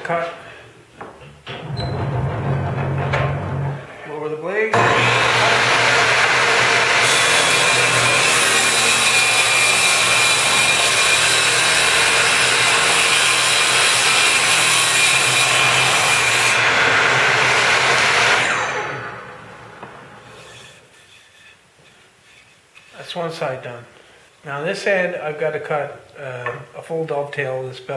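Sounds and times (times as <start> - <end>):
table saw cutting wood: 4.7 - 20.8
saw winding down: 4.8 - 19.4.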